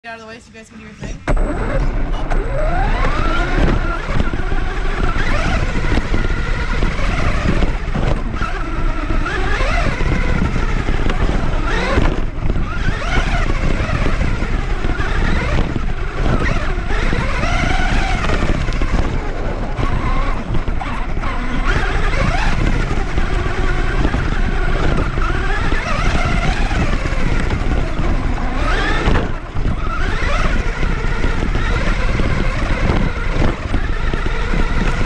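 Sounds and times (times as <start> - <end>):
tyres rumbling on dirt: 0.1 - 35.0
toy truck motor whine: 1.2 - 35.0.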